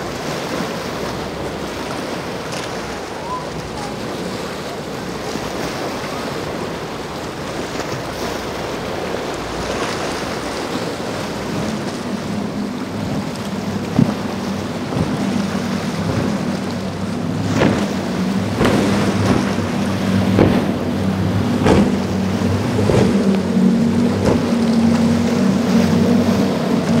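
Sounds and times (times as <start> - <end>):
boat engine drone: 0.0 - 27.0
surf: 0.0 - 27.0
wind buffeting microphone: 0.0 - 27.0
brief thump: 21.6 - 22.0.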